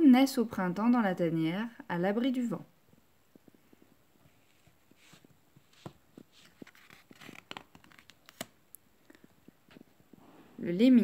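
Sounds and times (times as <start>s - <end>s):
pages turning: 4.2s - 9.9s.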